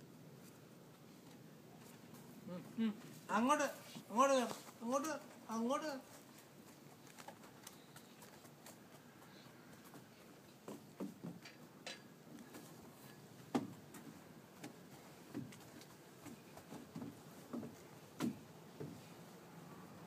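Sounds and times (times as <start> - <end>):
footsteps on metal deck: 4.0 - 19.2.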